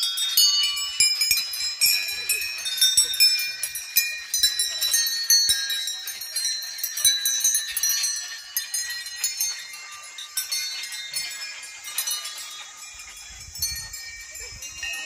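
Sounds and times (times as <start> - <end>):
temple bells ringing: 0.0 - 15.0.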